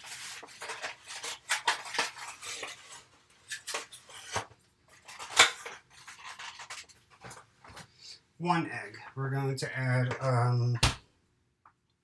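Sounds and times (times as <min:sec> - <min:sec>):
plastic egg carton rattling: 0:05.0 - 0:07.4.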